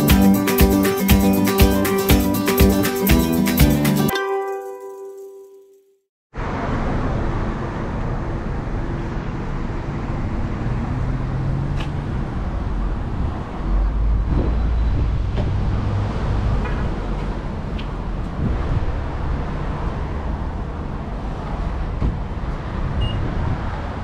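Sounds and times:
traffic noise: 6.4 - 24.0.

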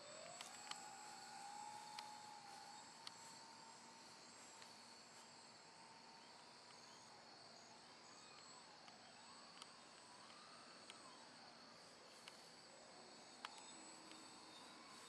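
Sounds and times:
insects chirring: 0.0 - 15.0
model plane motor whine: 0.0 - 15.0.

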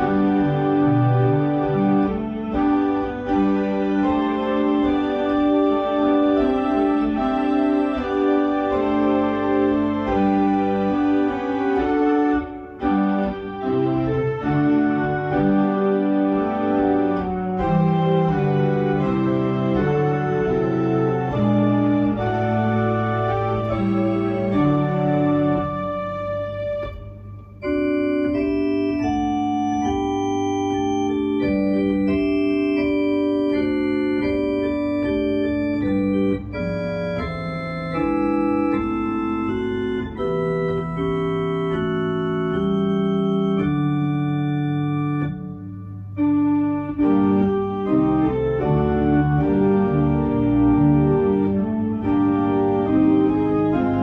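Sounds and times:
electronic organ playing chords: 0.0 - 54.0.

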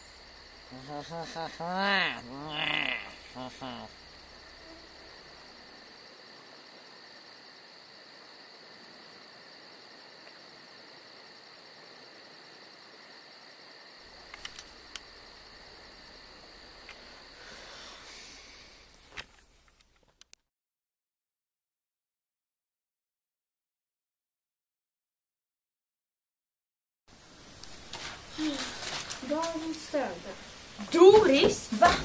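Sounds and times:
crickets chirping: 0.0 - 20.0, 27.1 - 32.0
faint sharp clicks: 14.2 - 15.1.

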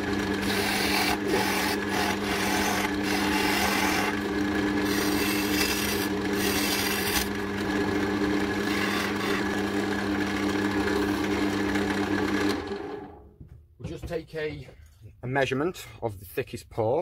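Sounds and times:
wood lathe motor hum: 0.0 - 13.2
turning tool scraping wood: 0.4 - 7.4, 8.5 - 9.8.

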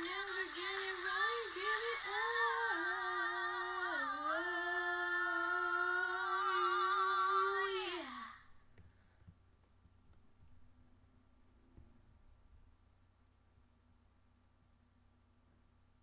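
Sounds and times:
woman singing pop song: 0.0 - 8.5.

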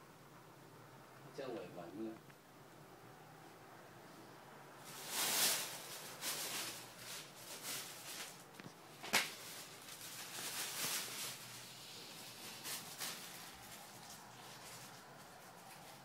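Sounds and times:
soft rustling and shuffling: 4.1 - 16.0.

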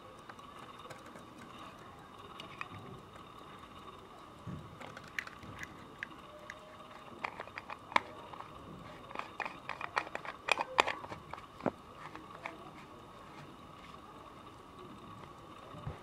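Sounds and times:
faint steady hum: 0.0 - 16.0
fingernail clicking on metal case: 4.8 - 12.7.

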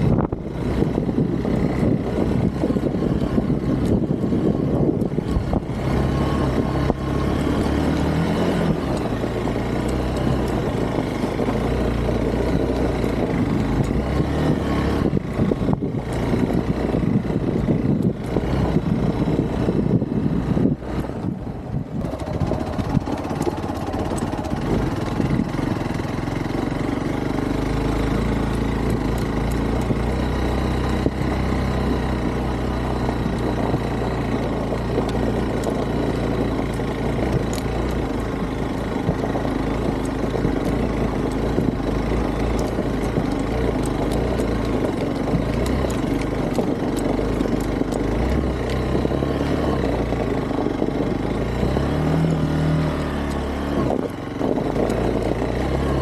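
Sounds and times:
motorcycle engine running: 0.0 - 56.0
sharp clicks: 33.0 - 50.4.

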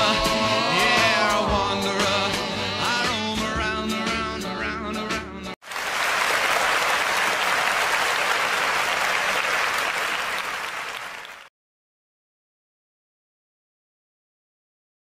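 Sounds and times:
rock and roll song: 0.0 - 5.6
audience applauding: 5.6 - 11.5.

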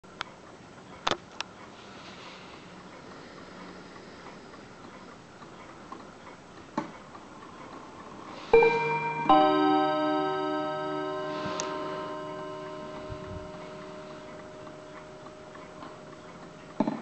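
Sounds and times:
clock chime notes: 8.4 - 17.0
mantel clock ticking: 8.6 - 17.0.

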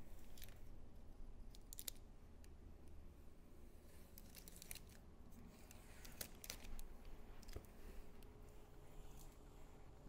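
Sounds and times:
faint handling clicks and rustles: 0.0 - 0.8, 3.7 - 10.0.

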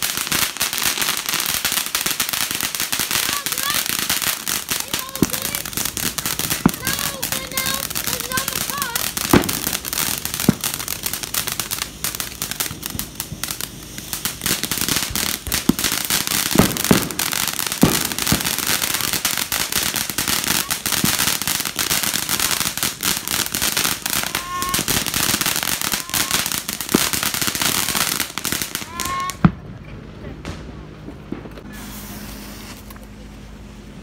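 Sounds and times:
firework crackling hiss: 0.0 - 29.5, 31.3 - 33.2
sharp firework pops: 8.1 - 20.2, 30.4 - 33.1.

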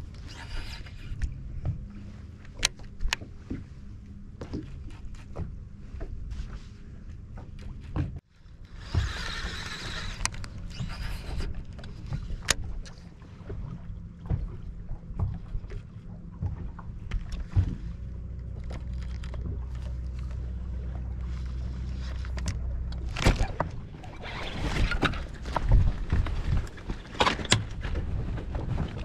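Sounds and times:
knocks and clicks of fishing reel: 0.1 - 1.4, 8.6 - 13.0
waves slapping boat hull: 1.0 - 29.0.

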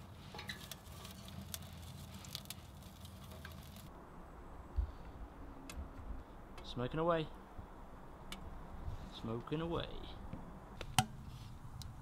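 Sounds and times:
fire crackling and popping: 0.0 - 3.9.

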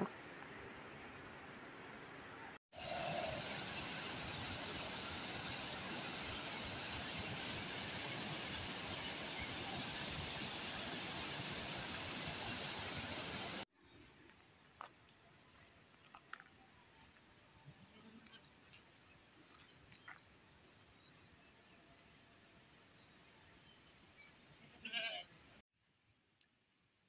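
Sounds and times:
waterfall rushing over rocks: 2.8 - 13.7.

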